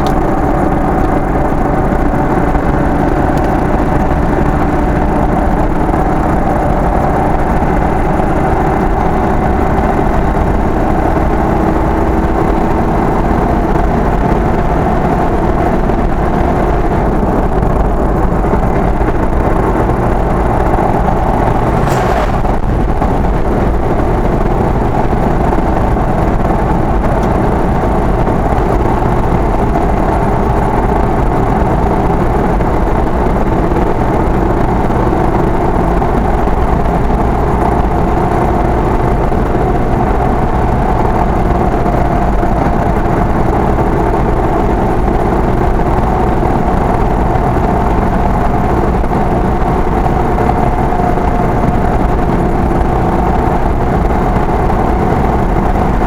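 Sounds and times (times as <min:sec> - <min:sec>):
car engine and road hum: 0:00.0 - 0:56.0.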